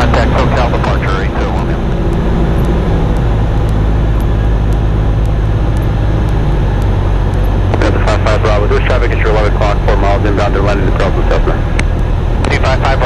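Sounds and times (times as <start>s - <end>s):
propeller plane engine droning: 0.0s - 13.0s.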